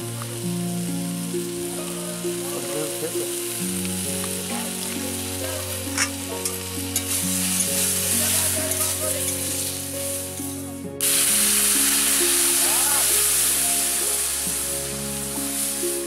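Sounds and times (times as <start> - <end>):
vegetables sizzling in hot oil: 0.0 - 10.2, 11.0 - 16.0
soft background music: 0.0 - 16.0
metal spatula scraping wok: 5.9 - 9.8.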